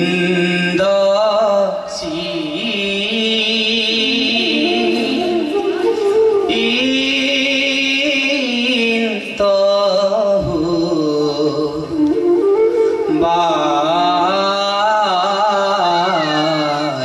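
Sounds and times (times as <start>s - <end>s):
man singing: 0.0s - 17.0s
bamboo flute melody: 4.0s - 8.2s, 10.7s - 15.1s.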